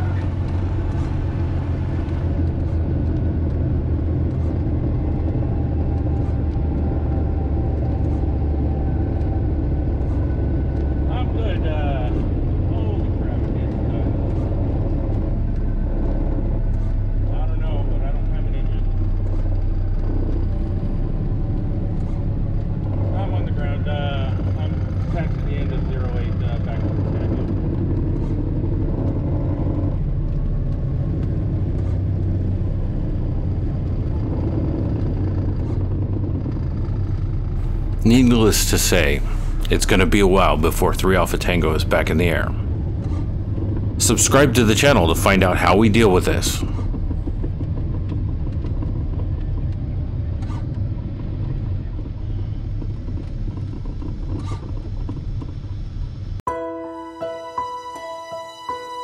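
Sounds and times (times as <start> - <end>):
aircraft engine and propeller drone: 0.0 - 56.4
soft piano music: 56.5 - 59.0.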